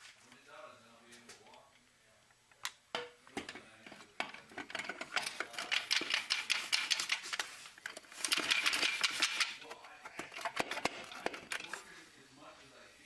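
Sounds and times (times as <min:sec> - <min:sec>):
metal parts clinking and rattling: 0:08.1 - 0:09.6.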